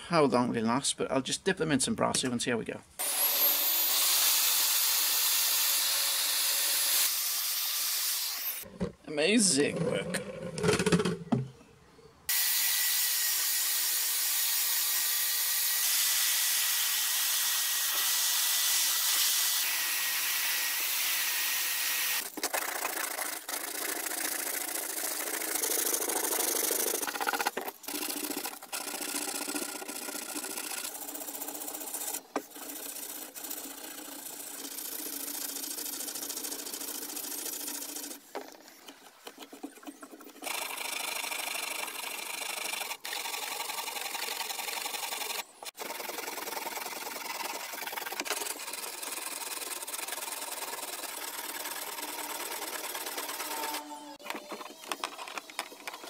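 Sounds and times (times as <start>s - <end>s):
power drill whining: 3.0s - 8.7s, 49.8s - 56.0s
hand sanding wood and metal: 17.3s - 38.2s, 43.8s - 56.0s.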